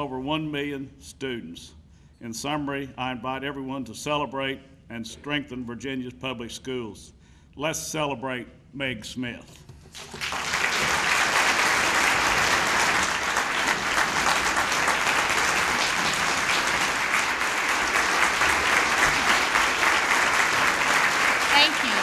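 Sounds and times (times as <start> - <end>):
audience applauding: 9.9 - 22.0.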